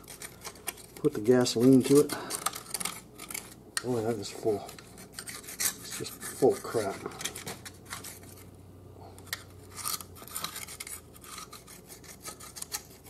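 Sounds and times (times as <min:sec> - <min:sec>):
metal pick scraping grit: 0:00.0 - 0:08.5, 0:09.3 - 0:13.0.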